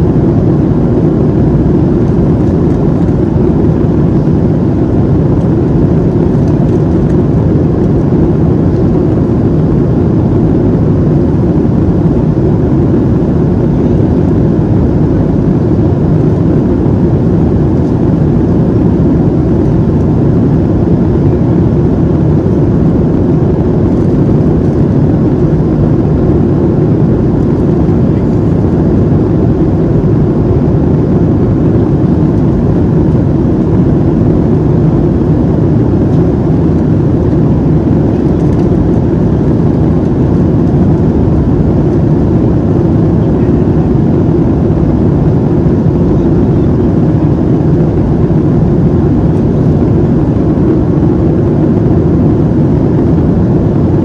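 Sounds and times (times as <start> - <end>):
airliner cabin drone: 0.0 - 54.0
jet engines and airflow rush: 0.0 - 54.0.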